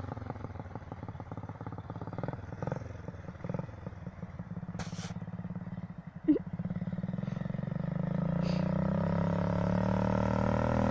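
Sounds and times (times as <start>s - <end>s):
motorcycle engine running: 0.0s - 10.9s
short hiss: 4.8s - 5.2s.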